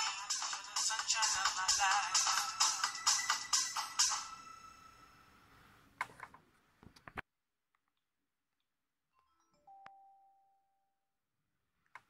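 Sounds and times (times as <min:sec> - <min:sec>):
faint chime: 0:09.1 - 0:11.0.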